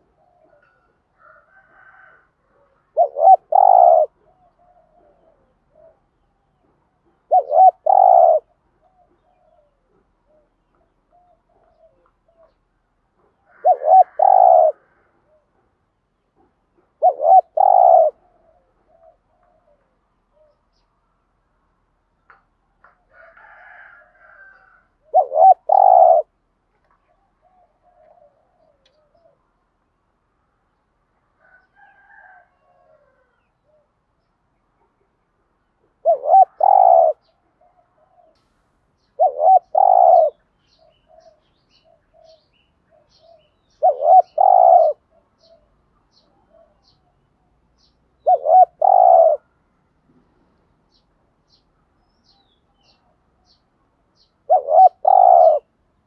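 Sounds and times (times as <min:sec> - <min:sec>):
dove cooing: 0:00.0 - 0:12.6, 0:13.2 - 0:15.7, 0:16.4 - 0:20.8, 0:23.1 - 0:26.4, 0:27.0 - 0:29.5, 0:35.9 - 0:38.4, 0:39.1 - 0:47.2, 0:48.2 - 0:49.5, 0:54.2 - 0:55.7.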